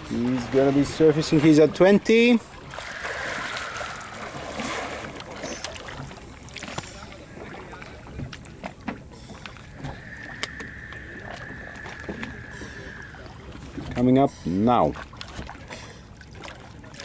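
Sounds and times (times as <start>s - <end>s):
waves lapping against boat: 0.0s - 17.0s
steady high tone: 2.6s - 5.5s, 9.6s - 14.0s.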